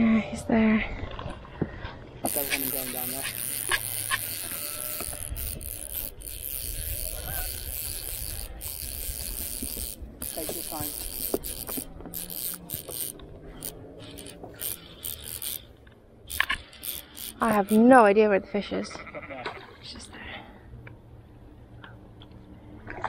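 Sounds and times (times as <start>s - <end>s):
fly reel ratchet clicking: 2.2s - 18.0s.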